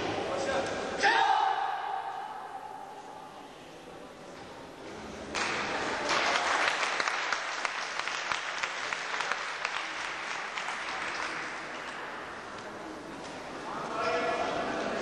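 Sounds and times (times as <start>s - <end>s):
audience applauding: 5.4s - 11.7s.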